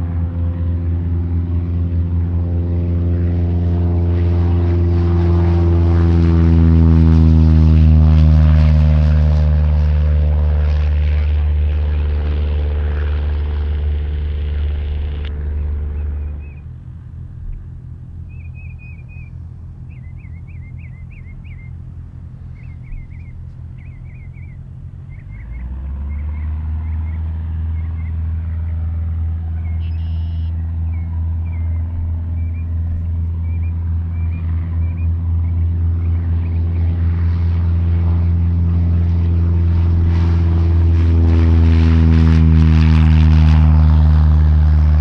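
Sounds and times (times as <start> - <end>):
light aircraft engine droning: 0.0 - 45.0
small bird chirping: 15.6 - 16.7, 17.5 - 21.8, 22.4 - 28.8, 29.6 - 36.9.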